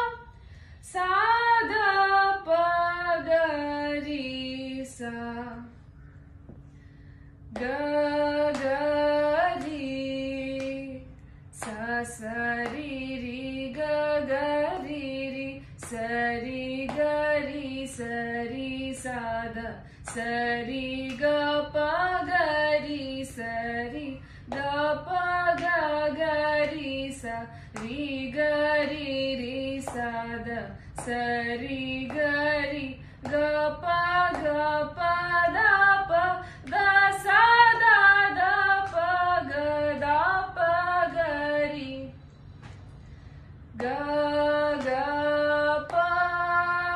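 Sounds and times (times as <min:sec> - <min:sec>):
woman singing vocal exercises: 0:00.0 - 0:05.9, 0:07.5 - 0:42.2, 0:43.7 - 0:46.9
breaths: 0:00.3 - 0:00.9, 0:05.8 - 0:07.5, 0:19.8 - 0:20.1, 0:24.2 - 0:24.5, 0:27.5 - 0:27.8, 0:30.7 - 0:31.0, 0:33.0 - 0:33.2, 0:36.4 - 0:36.7, 0:42.8 - 0:43.7.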